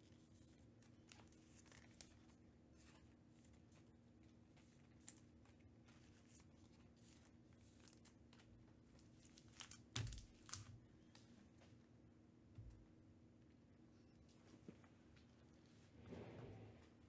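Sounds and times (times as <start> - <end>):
faint low hum: 0.0 - 17.0
plastic crinkling and rustling: 0.1 - 11.3.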